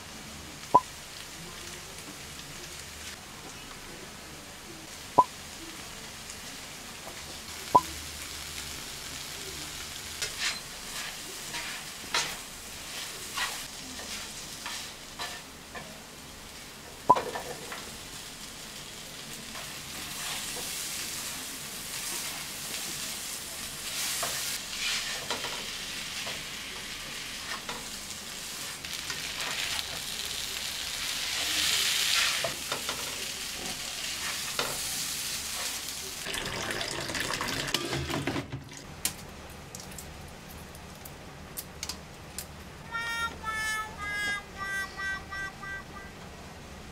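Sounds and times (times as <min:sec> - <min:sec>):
vegetables sizzling in frying pan: 0:00.0 - 0:38.0
spatula scraping pan: 0:10.2 - 0:12.4.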